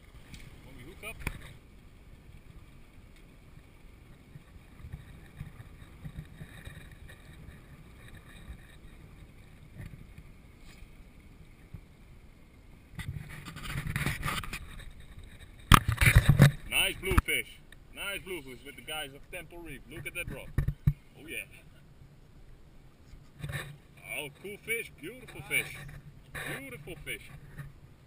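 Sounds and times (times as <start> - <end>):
water against boat hull: 0.0 - 18.6, 19.3 - 21.3.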